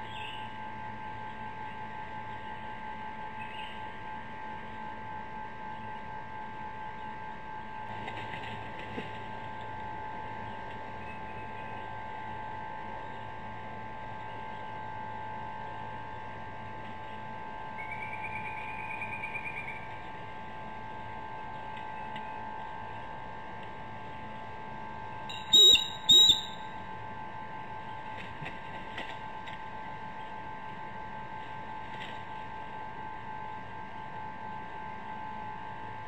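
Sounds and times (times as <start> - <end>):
electrical hum: 0.0 - 36.0
eagle calls: 25.3 - 26.6
trilling bird call: 25.3 - 26.7.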